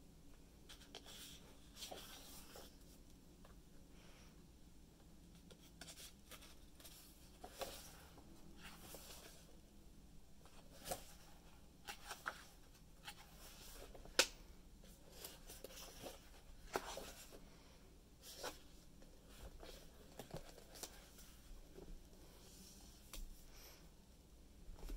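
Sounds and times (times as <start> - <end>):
book pages turning: 5.4 - 9.5, 10.4 - 14.4, 15.1 - 17.4, 18.2 - 21.4.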